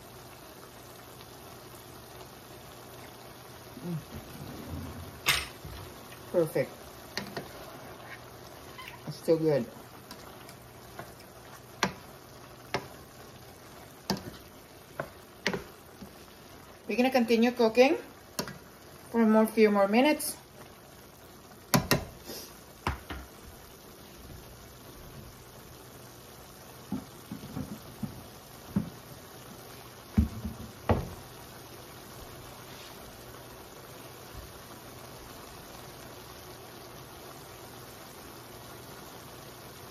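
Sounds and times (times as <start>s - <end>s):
beef and onions sizzling: 0.0s - 39.9s
food simmering in a pan: 0.0s - 39.9s
spoon tapping pan: 10.1s - 13.2s, 14.0s - 16.2s, 18.3s - 18.6s, 21.7s - 22.2s, 22.8s - 23.3s, 26.9s - 29.0s.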